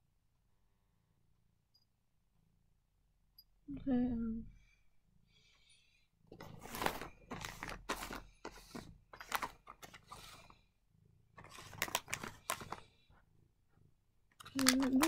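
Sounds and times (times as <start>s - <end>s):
foil packets crinkling: 6.4s - 10.5s, 11.4s - 12.9s, 14.4s - 15.0s.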